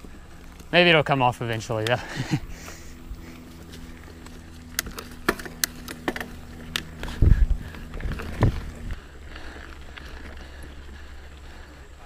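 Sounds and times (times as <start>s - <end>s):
wind: 0.0s - 12.0s
tyres rolling on dirt: 3.4s - 12.0s
bike rattling clicks: 4.0s - 11.7s.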